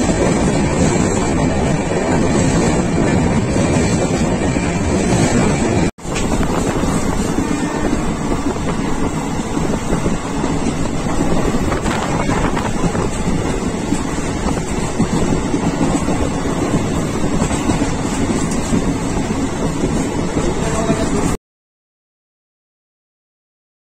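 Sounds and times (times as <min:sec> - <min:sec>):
train running noise: 0:00.0 - 0:21.4
wind on microphone: 0:00.0 - 0:21.4.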